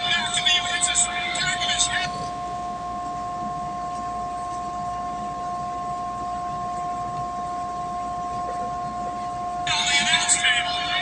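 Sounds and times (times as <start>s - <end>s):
two-tone steady hum: 0.0s - 11.0s.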